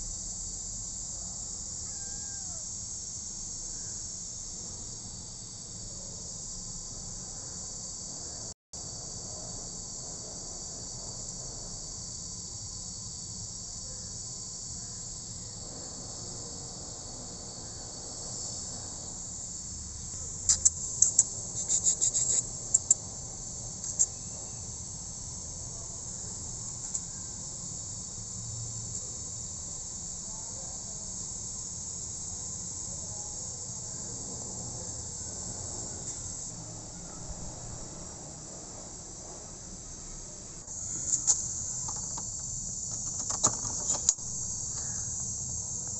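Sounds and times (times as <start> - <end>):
insects chirping: 0.0 - 45.9
sharp insect clicks: 19.6 - 25.4, 26.0 - 29.6, 40.7 - 45.9.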